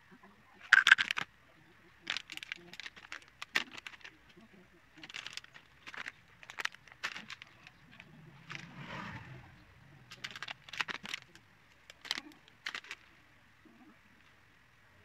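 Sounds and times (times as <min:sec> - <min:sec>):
treats clicking on a plate: 0:00.6 - 0:01.3
plastic packaging rustling: 0:00.6 - 0:08.9, 0:10.0 - 0:13.2.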